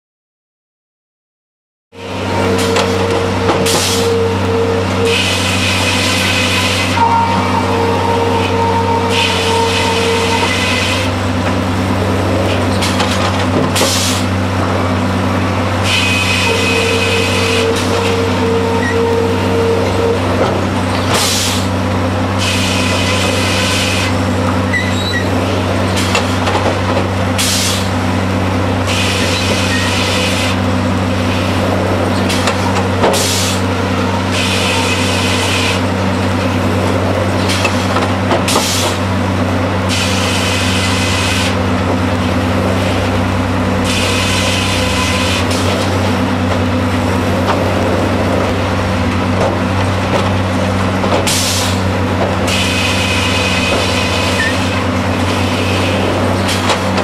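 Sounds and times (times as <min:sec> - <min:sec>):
low drone of mill drive: 0:01.9 - 0:57.0
circular saw cutting log: 0:02.0 - 0:11.6.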